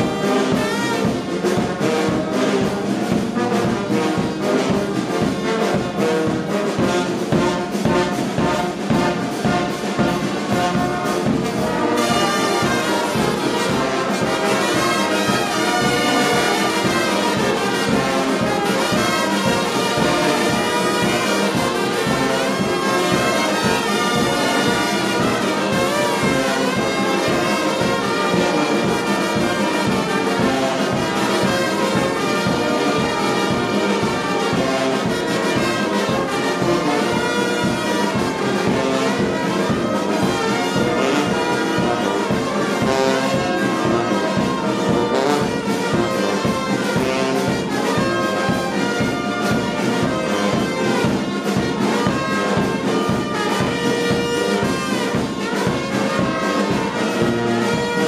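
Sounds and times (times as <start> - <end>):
brass band playing: 0.0 - 58.0.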